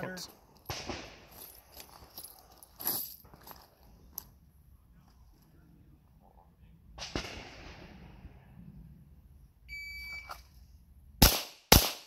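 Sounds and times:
pistol shots: 7.0 - 8.0, 11.2 - 12.0
shot timer beep: 9.7 - 10.3.

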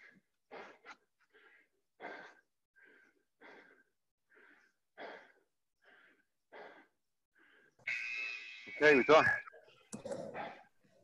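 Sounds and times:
heavy panting breaths: 0.0 - 7.8.

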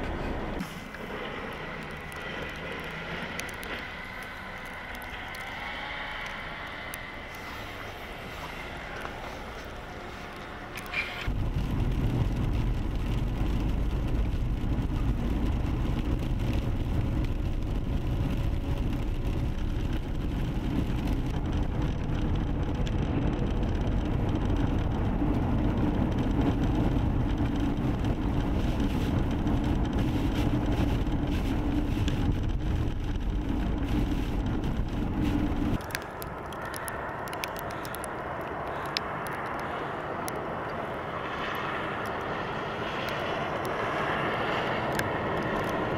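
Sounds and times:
tyres hissing on slushy road: 0.0 - 11.3, 35.1 - 45.9
passing traffic: 0.0 - 45.9
vehicle road rumble: 0.0 - 45.9.

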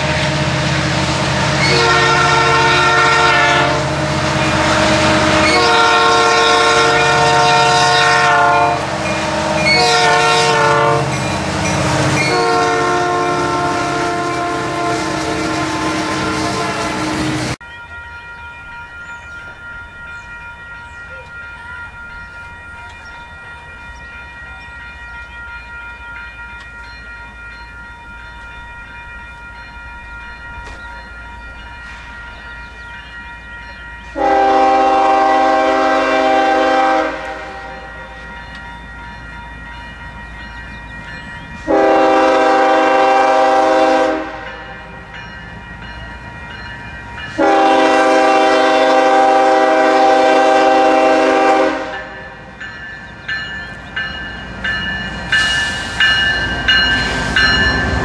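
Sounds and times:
locomotive air horn blasts: 0.0 - 17.6, 34.1 - 38.2, 41.6 - 44.9, 47.3 - 52.3
train rumble: 0.0 - 58.0.

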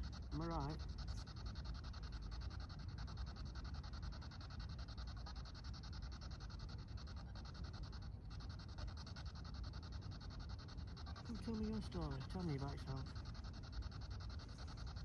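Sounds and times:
radio static pulsing: 0.0 - 1.7, 11.0 - 15.0.

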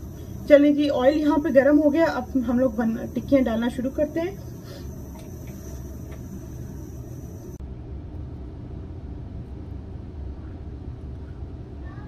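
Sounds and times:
thin high hiss: 0.0 - 7.6
low background rumble: 0.0 - 12.0.

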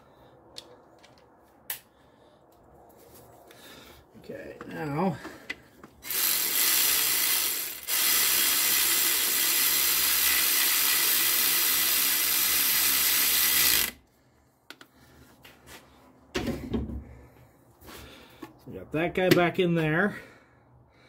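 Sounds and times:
cordless power tool running: 6.0 - 14.0.

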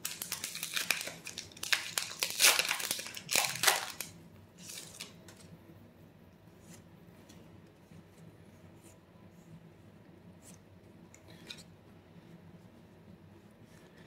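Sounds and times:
foil wrapper crinkling and tearing: 0.0 - 5.2.

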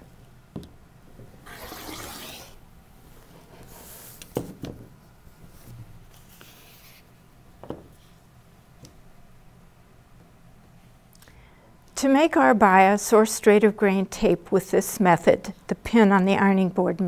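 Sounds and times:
rotary cutter slicing fabric: 1.4 - 2.6
soft scrape: 1.4 - 2.6.

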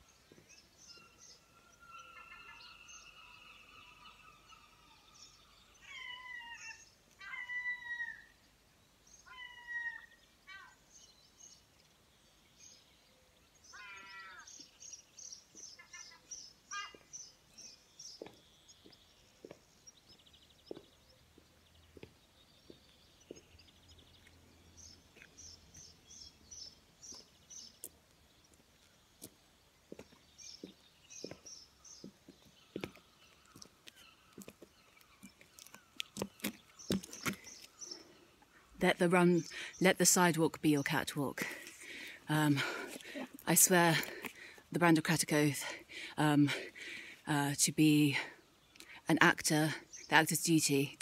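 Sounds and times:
songbirds singing: 0.0 - 51.0
footsteps of boots on paving: 18.1 - 24.4, 27.0 - 37.8.

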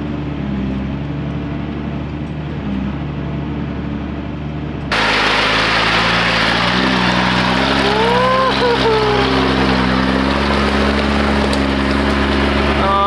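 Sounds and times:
truck engine running: 0.0 - 13.0
rushing water noise: 4.9 - 13.0.

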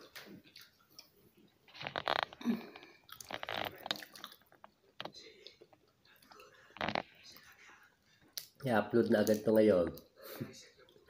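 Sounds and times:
wet squishy chewing: 0.0 - 7.1
peanut shells cracking: 1.8 - 5.2, 8.4 - 9.5.

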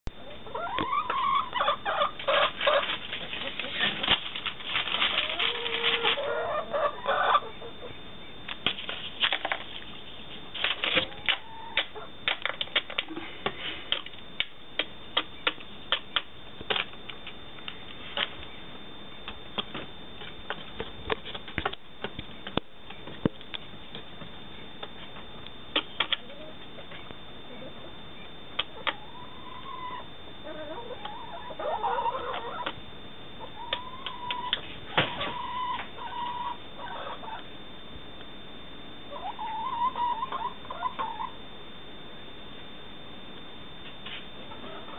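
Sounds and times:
hen clucking softly: 0.2 - 3.7, 5.2 - 8.0, 28.6 - 32.8, 33.4 - 37.4, 39.1 - 41.3, 44.5 - 44.9.

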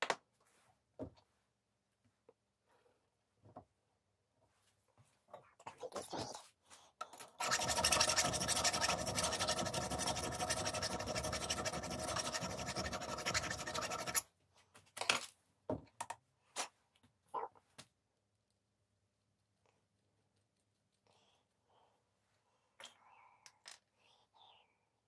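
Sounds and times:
tool scraping workpiece: 7.2 - 14.2.

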